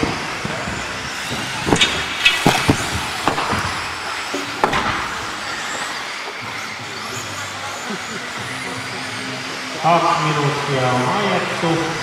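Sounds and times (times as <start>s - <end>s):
electric motor whine: 0.0s - 12.0s
plastic cars landing knocks: 1.4s - 3.9s, 4.6s - 5.1s.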